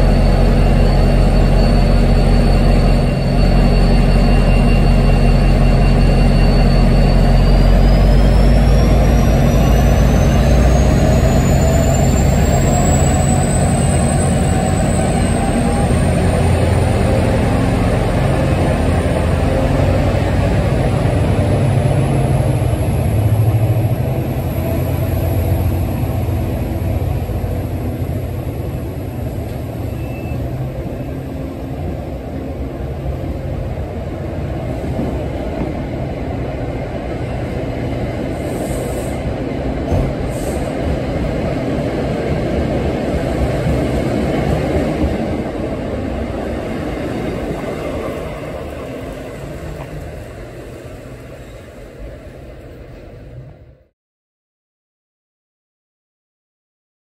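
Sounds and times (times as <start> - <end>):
diesel locomotive engine running: 0.0 - 53.8
train wheels rumbling on rail: 0.0 - 53.9.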